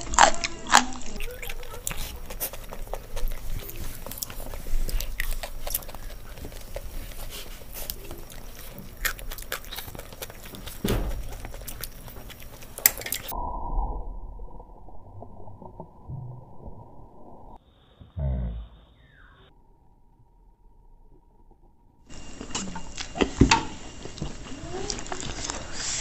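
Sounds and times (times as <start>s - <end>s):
people chewing noodles: 0.0s - 13.3s, 22.1s - 26.0s
loud thump: 10.8s - 11.4s.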